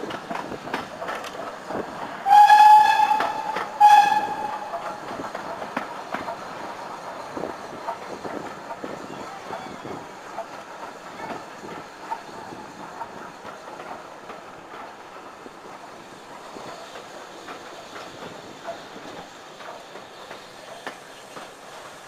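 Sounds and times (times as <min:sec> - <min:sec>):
train wheels rumbling on track: 0:00.0 - 0:22.0
wheels clicking over rail joints: 0:00.0 - 0:22.0.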